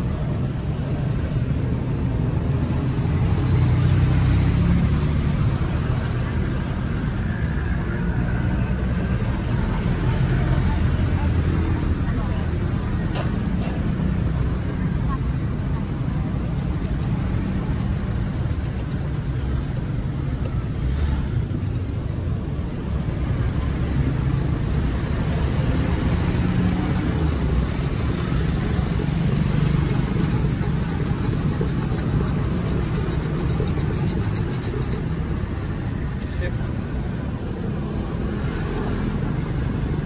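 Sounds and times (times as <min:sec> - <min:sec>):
road traffic rumble: 0:00.0 - 0:40.0
whisk frother spinning in a cup: 0:26.1 - 0:35.4.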